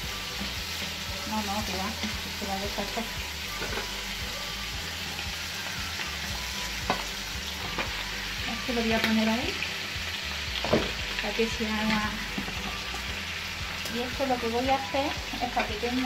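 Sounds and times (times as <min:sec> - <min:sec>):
oil sizzling in a frying pan: 0:00.0 - 0:16.0
wooden spoon knocking on pan: 0:10.6 - 0:11.0.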